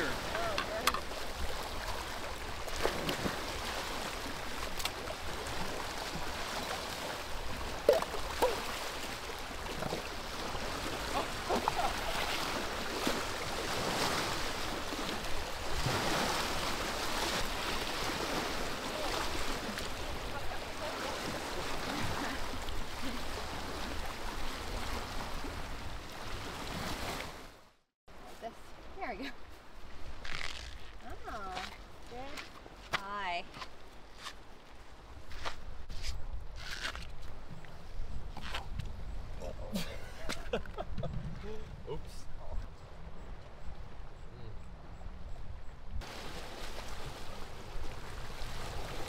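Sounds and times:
waves lapping on rocky shore: 0.0s - 27.6s, 46.0s - 49.0s.

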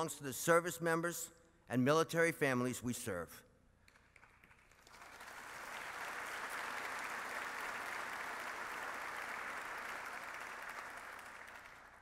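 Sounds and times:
audience applause: 4.2s - 12.0s.

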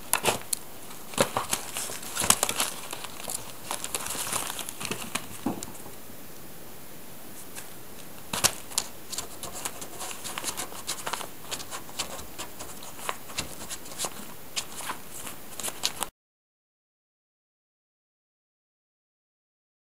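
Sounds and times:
paws scrabbling on newspaper: 0.1s - 5.7s, 8.3s - 16.1s.

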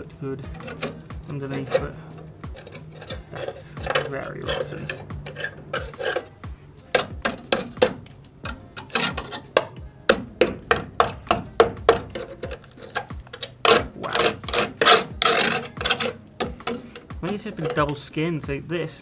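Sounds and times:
screwdriver scraping rusty metal: 0.4s - 18.2s.

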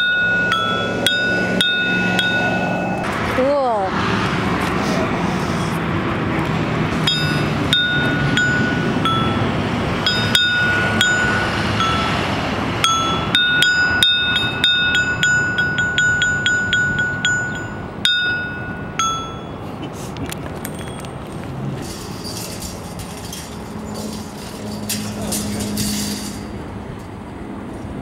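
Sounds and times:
metal rod striking steel plates: 0.0s - 3.3s, 7.0s - 19.6s, 21.8s - 26.6s
steady background noise: 0.0s - 28.0s.

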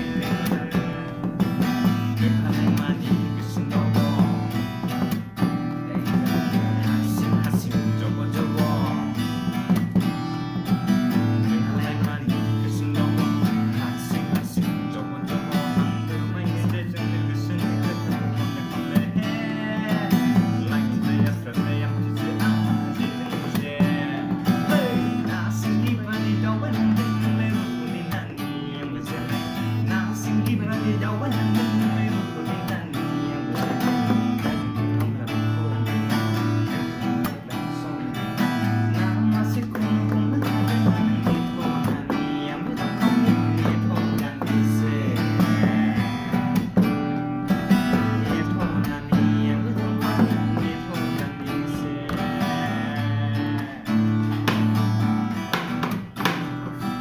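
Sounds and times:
acoustic guitar strummed: 0.0s - 57.0s
man singing: 0.0s - 57.0s.

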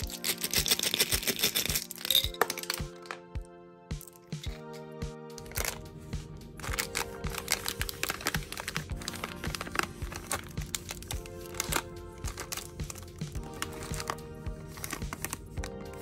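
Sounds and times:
background music: 0.0s - 16.0s
plastic wrapper crinkling: 5.4s - 5.9s, 6.5s - 16.0s.

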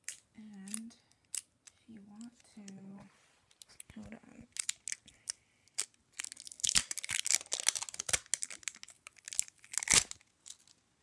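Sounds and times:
close crinkling and rustling: 2.2s - 10.8s.

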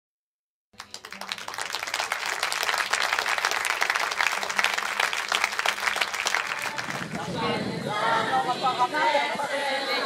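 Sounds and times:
crowd applauding: 0.8s - 7.3s.

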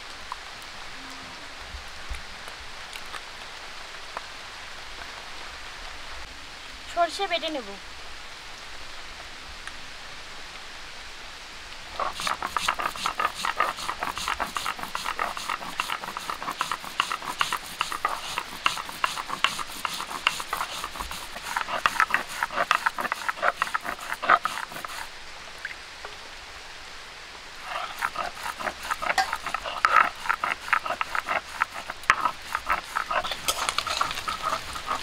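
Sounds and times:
stone grinding seeds: 12.0s - 25.1s, 27.6s - 35.0s.

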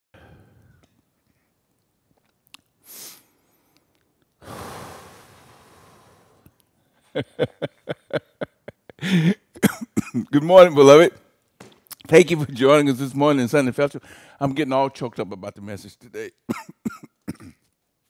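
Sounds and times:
man breathing out: 0.2s - 0.8s, 4.4s - 6.6s
man sniffing: 2.8s - 3.4s, 4.4s - 6.6s
man clearing throat: 9.6s - 10.3s, 16.5s - 17.6s.

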